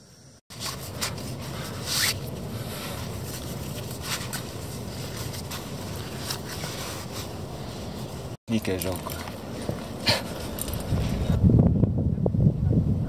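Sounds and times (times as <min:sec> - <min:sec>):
shoe laces rasping through eyelets: 0:00.5 - 0:08.0, 0:08.7 - 0:11.4.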